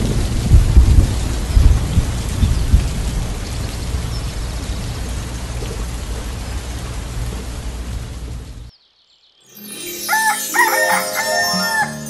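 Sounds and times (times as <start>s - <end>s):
thunder rumbling: 0.0s - 8.6s
steady rain hissing: 0.0s - 8.7s.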